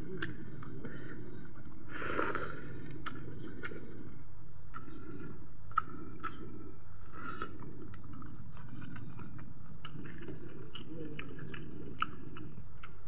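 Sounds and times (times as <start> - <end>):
chewing and wet mouth clicks: 4.7 - 13.0.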